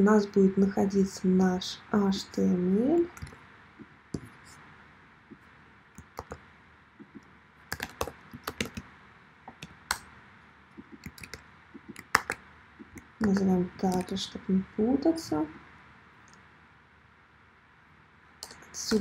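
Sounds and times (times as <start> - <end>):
typing on computer keyboard: 6.0 - 6.4, 7.7 - 8.8, 10.8 - 14.2.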